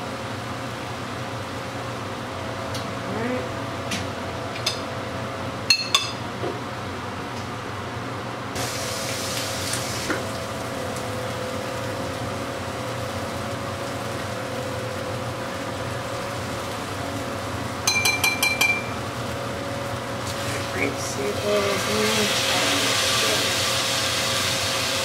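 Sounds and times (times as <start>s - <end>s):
chicken sizzling in oil: 8.6s - 25.0s
fork clinking on griddle: 17.8s - 19.0s.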